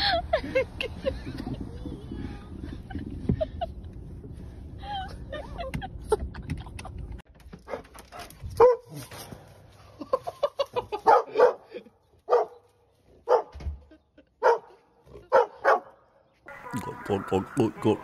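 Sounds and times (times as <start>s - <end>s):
dog barking: 8.6s - 9.0s, 11.0s - 11.7s, 12.3s - 12.6s, 13.2s - 13.6s, 14.4s - 16.8s.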